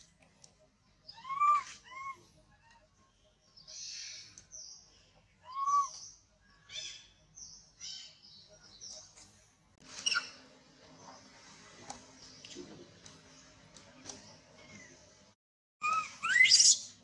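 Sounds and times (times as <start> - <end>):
infant monkey squealing: 1.1 - 2.8, 5.5 - 6.0, 15.8 - 16.9.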